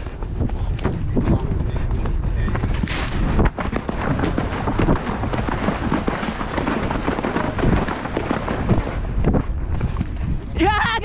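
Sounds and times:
wind rumble on microphone: 0:00.0 - 0:11.0
hooves splashing through water: 0:01.9 - 0:09.0.

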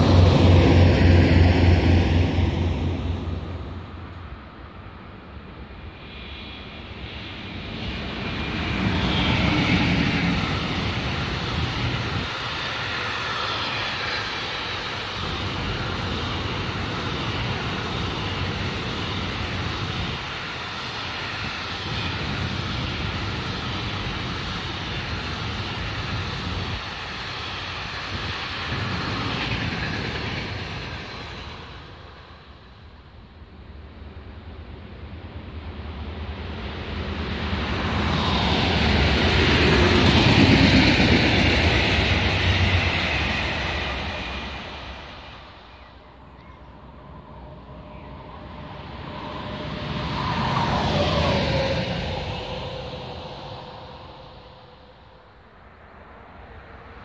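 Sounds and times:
train wheels rolling on rails: 0:05.7 - 0:33.3, 0:35.5 - 0:55.3.

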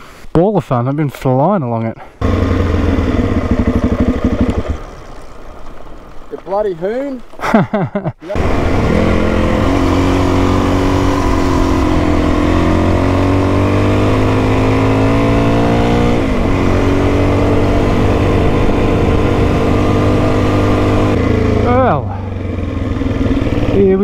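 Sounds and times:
motorcycle engine under load: 0:02.2 - 0:05.1, 0:08.4 - 0:24.0.

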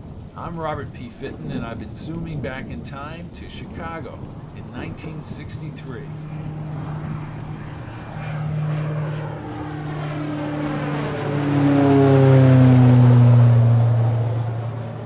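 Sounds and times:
low humming sci-fi drone: 0:06.0 - 0:15.0.

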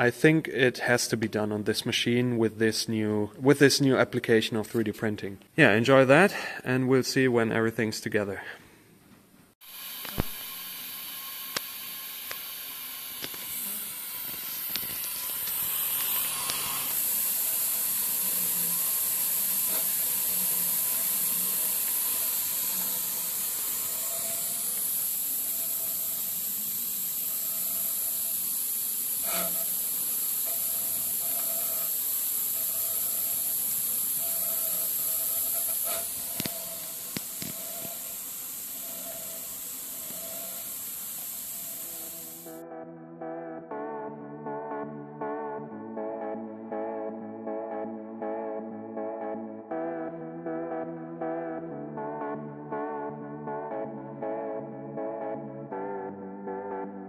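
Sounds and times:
compressed air hissing: 0:09.6 - 0:42.6.

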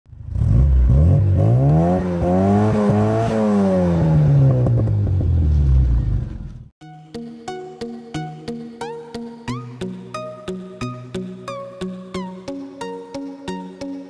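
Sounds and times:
car engine revving: 0:00.1 - 0:06.7.

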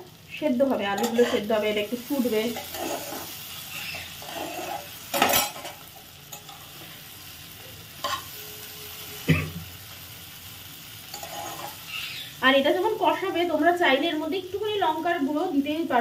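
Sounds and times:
frying sizzle: 0:00.0 - 0:16.0
spatula scraping a pot: 0:01.0 - 0:01.5, 0:02.5 - 0:05.8, 0:11.1 - 0:12.3.

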